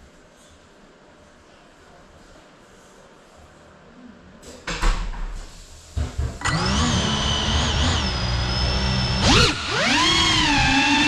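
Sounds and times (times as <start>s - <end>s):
drone motors whining: 6.4s - 11.0s.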